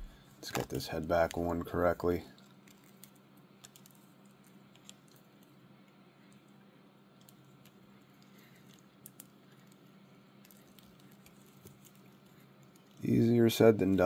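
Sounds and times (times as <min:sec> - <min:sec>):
faint plastic clicks: 0:02.3 - 0:13.1.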